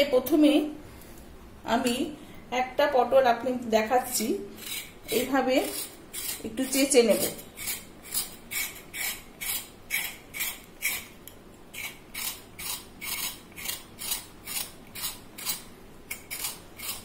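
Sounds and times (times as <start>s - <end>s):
knife scraping gourd skin: 4.1s - 17.0s.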